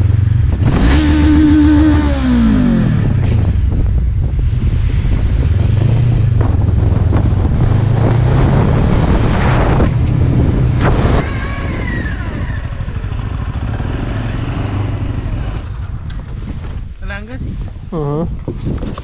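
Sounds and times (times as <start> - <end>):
motorcycle engine running: 0.0 - 8.8, 11.3 - 16.9
atv engine with wavering whine: 0.0 - 16.2.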